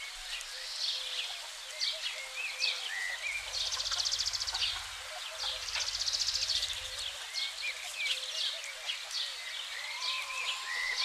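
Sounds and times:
songbirds chirping: 0.0s - 11.0s.

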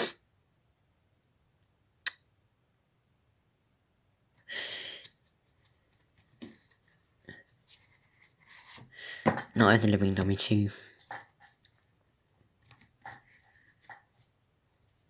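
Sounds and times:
short breath: 4.4s - 5.1s
books knocking and tapping: 8.8s - 10.3s, 11.0s - 11.6s.

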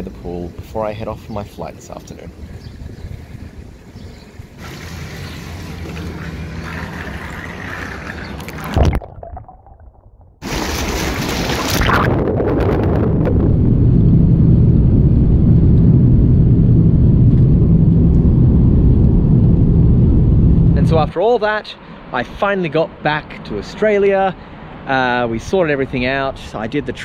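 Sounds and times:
jet engines roaring: 3.4s - 8.8s.

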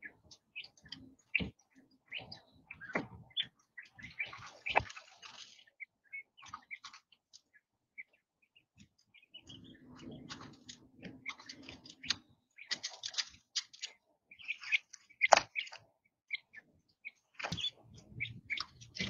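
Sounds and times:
quail chicks peeping: 0.0s - 19.0s
rustling and tapping on microphone: 4.2s - 5.6s, 8.8s - 14.0s, 17.4s - 19.0s.

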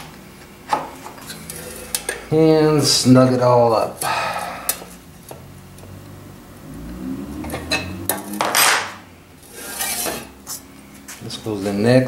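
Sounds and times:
metal tools clinking and scraping: 7.7s - 10.6s.

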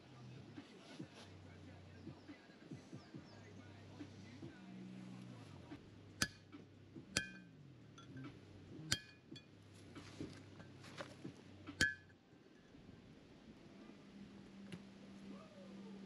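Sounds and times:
hammer striking metal punch: 6.2s - 7.5s, 8.9s - 9.4s, 11.8s - 12.1s.

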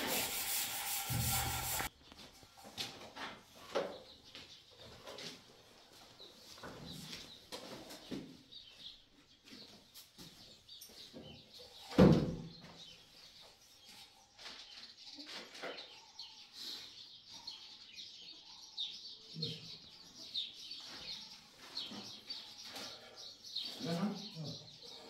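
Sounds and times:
knocks and scrapes of wall work: 0.0s - 1.9s
small birds chirping: 3.7s - 25.0s.

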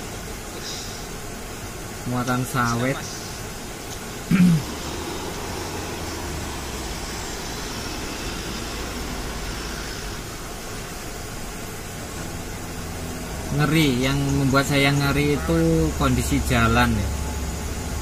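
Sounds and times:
steady hiss: 0.0s - 18.0s
truck diesel engine droning: 4.2s - 18.0s
brief vocal sound: 4.3s - 5.9s.

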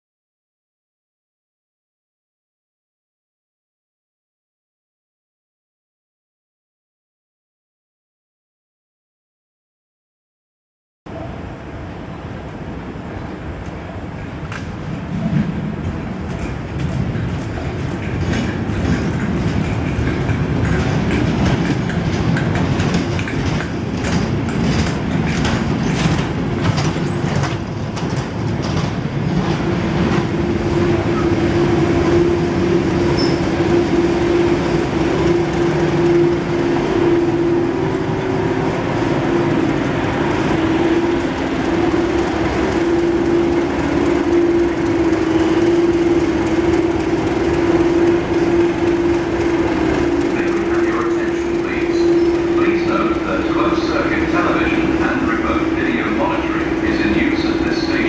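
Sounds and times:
diesel locomotive engine drone: 11.1s - 58.0s
wheels clicking over rail joints: 13.6s - 30.2s.

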